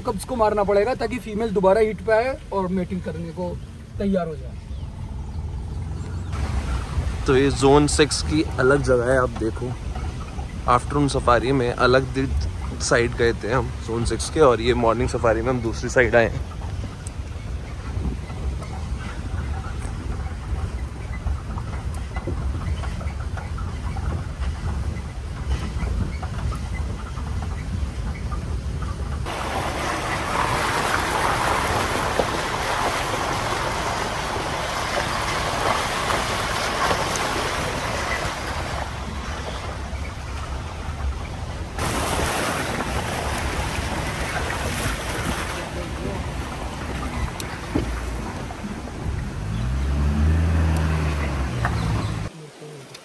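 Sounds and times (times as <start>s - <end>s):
engine and tyre rumble: 0.0s - 53.0s.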